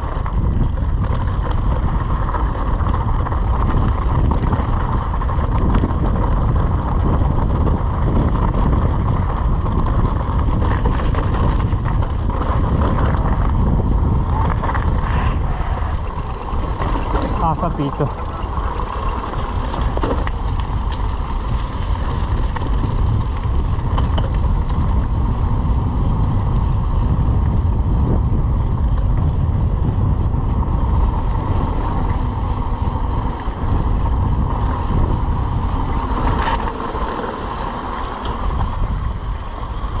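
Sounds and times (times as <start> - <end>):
bike clicks and knocks: 0.0 - 15.2, 15.8 - 29.5
bike tyres rumbling on concrete: 0.0 - 40.0
wind rushing over microphone: 0.0 - 40.0.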